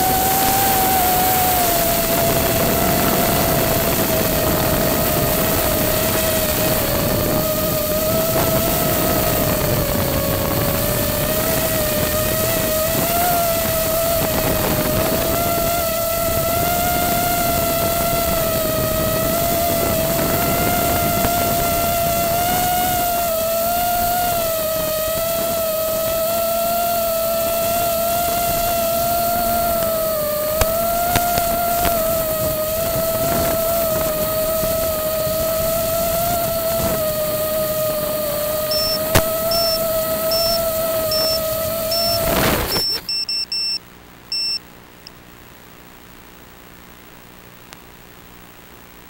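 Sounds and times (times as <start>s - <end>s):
hiss: 0.0s - 43.0s
quadcopter motors buzzing whine: 0.0s - 44.6s.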